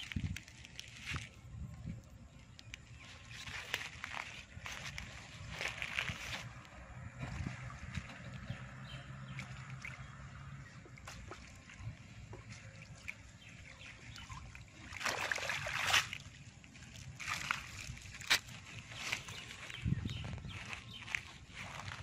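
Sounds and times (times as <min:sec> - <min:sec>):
river water sloshing: 0:00.0 - 0:01.6, 0:02.3 - 0:22.0
water splash: 0:07.2 - 0:16.4.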